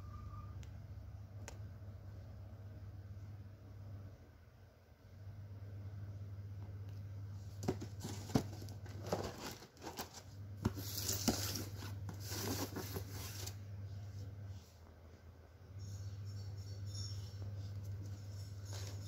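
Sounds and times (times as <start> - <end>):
low steady hum: 0.0 - 19.0
cardboard rustling and scraping: 7.4 - 14.9, 17.7 - 19.0.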